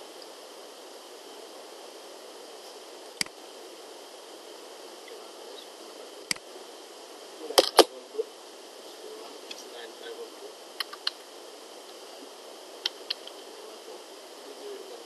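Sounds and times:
steady low hiss: 0:00.0 - 0:15.0
computer mouse clicks: 0:10.8 - 0:11.2.

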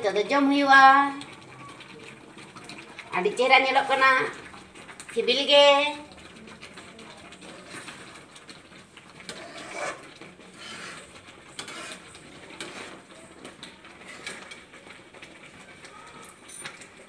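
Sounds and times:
steel spoon scraping steel pot: 0:09.3 - 0:13.0, 0:14.0 - 0:14.5.

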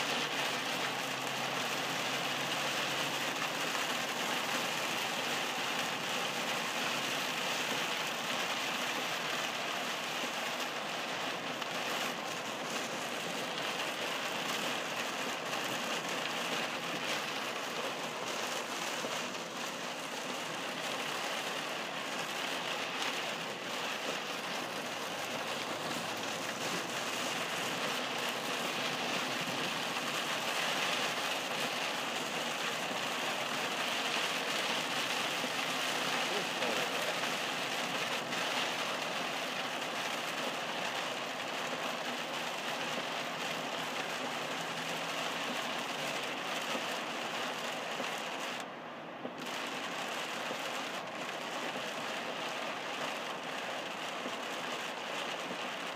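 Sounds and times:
heavy rain on a car roof: 0:00.0 - 0:55.9.

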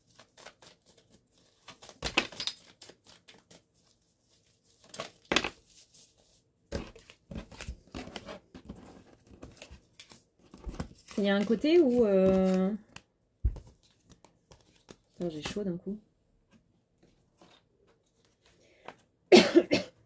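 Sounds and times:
cards being shuffled: 0:00.0 - 0:15.6.

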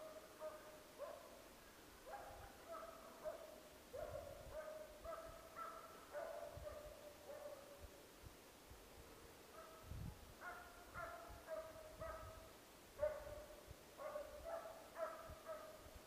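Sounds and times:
distant hound baying: 0:02.0 - 0:07.8, 0:10.4 - 0:15.8.

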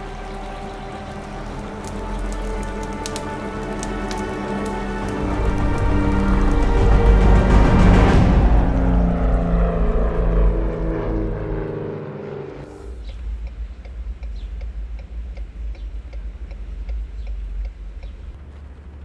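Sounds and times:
sustained music chords: 0:00.0 - 0:18.3
light regular ticking: 0:13.0 - 0:18.4.

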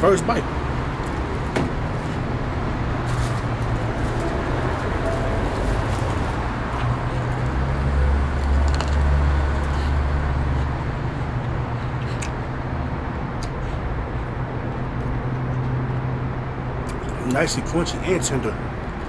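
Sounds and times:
road traffic rumble: 0:00.0 - 0:19.0
vehicle passing: 0:00.0 - 0:19.0.

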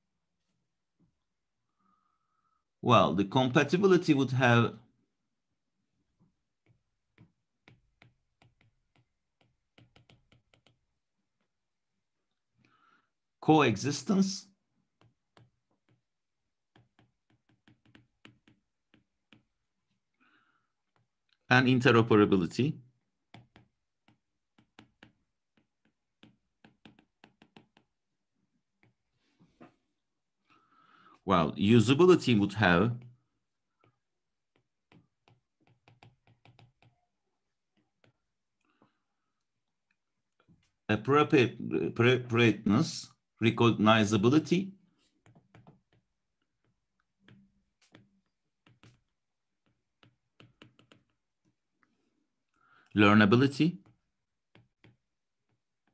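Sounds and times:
stylus tapping on tablet screen: 0:06.1 - 0:11.8, 0:14.8 - 0:20.0, 0:23.0 - 0:29.8, 0:32.2 - 0:39.0, 0:44.9 - 0:51.9, 0:53.3 - 0:55.9.

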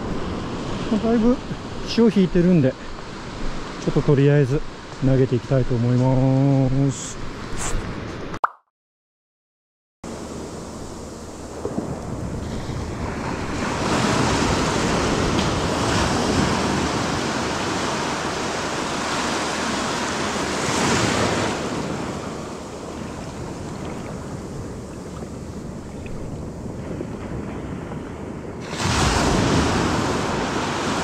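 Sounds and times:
surf washing onto beach: 0:10.1 - 0:31.0
wind buffeting microphone: 0:10.1 - 0:31.0.

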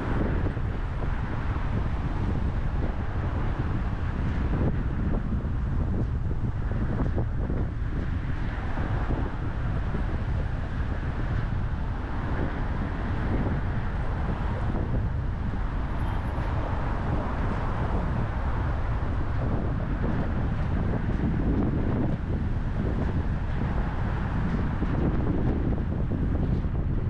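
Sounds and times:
tyre and engine rumble: 0:00.0 - 0:27.0
wind noise: 0:00.0 - 0:27.0.

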